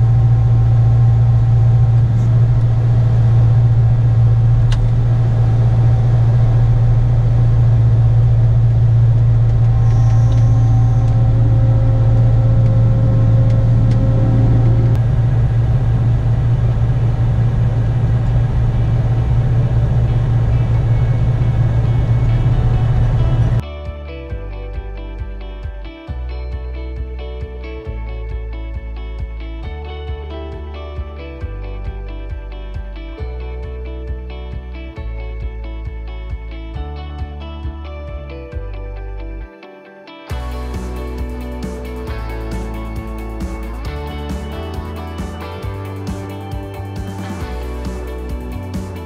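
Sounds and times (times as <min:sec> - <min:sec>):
combine harvester engine droning: 0:00.0 - 0:23.6, 0:40.3 - 0:49.0.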